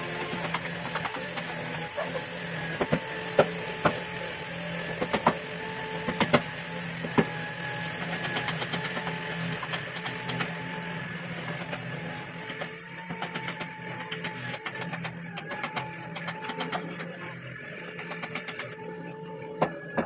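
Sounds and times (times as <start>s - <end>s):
small motor humming: 0.0s - 20.0s.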